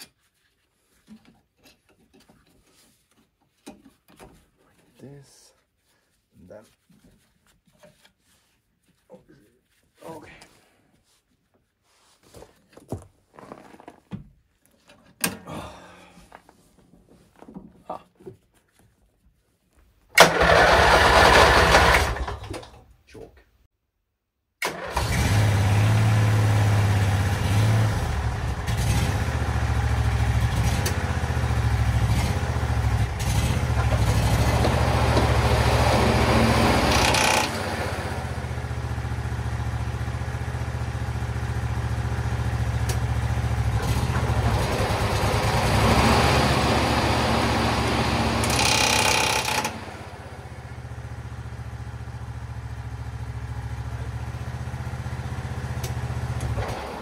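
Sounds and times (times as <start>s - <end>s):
ride-on mower engine: 20.2s - 22.5s, 24.6s - 57.0s.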